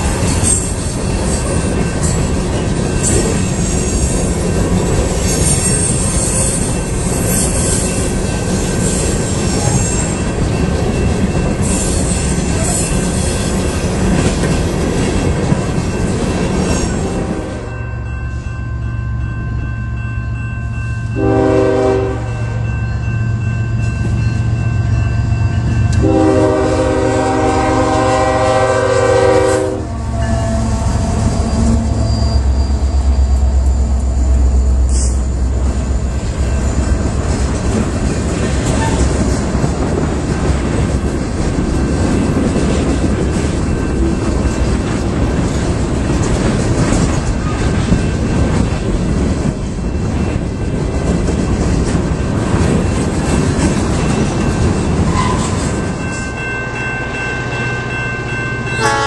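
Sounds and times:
freight cars rolling clickety-clack: 0.0 - 17.4, 33.3 - 56.4
locomotive engine rumbling: 4.6 - 59.0
train horn blast: 17.0 - 17.8, 21.2 - 22.6, 25.9 - 32.0, 58.8 - 59.0.

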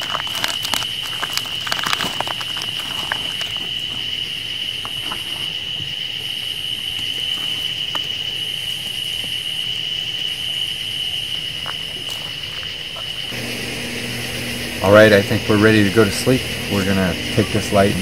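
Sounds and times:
packaging clicks: 0.0 - 4.2
crickets trilling: 0.0 - 18.0
high insect song: 0.0 - 18.0.

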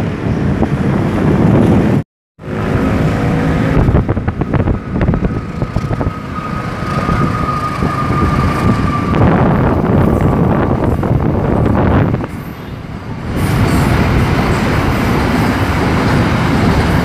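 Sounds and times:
wind buffeting microphone: 0.0 - 17.0
train wheels clattering on rails: 4.8 - 17.0.

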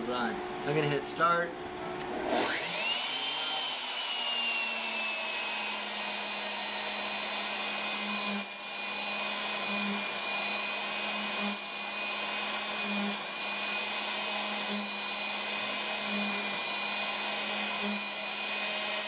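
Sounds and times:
router spindle high whine: 2.1 - 19.0.

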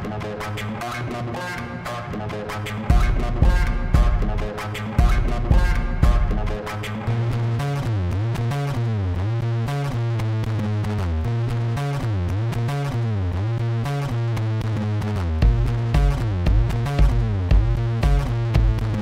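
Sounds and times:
synth bass line: 1.0 - 9.4, 15.2 - 19.0
drum machine beat: 2.5 - 7.1, 15.4 - 19.0
heavy bass kicks: 2.9 - 6.6, 15.4 - 19.0.

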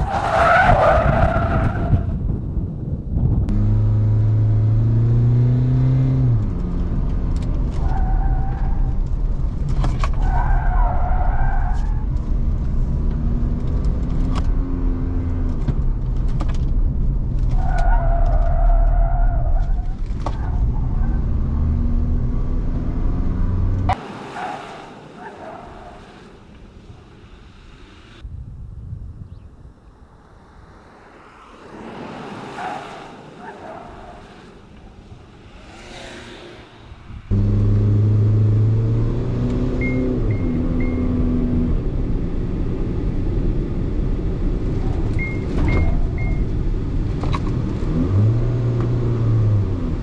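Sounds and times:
road and wind rumble: 0.0 - 50.0
truck engine: 30.2 - 50.0.

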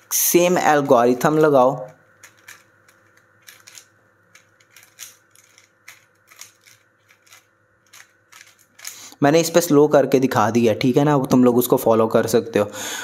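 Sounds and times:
puzzle cube clicking: 0.6 - 9.0.

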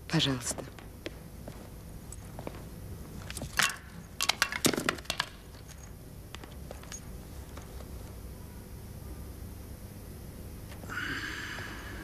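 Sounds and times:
small objects knocking and clinking: 3.3 - 7.0.

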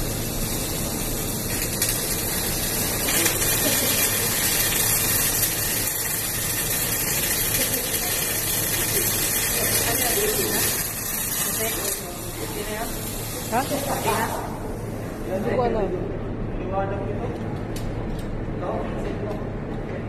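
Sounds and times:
welding arc crackling hiss: 0.0 - 15.7.

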